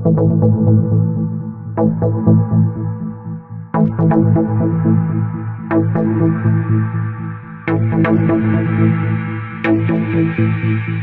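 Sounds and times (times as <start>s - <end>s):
electronic synthesizer music: 0.0s - 11.0s.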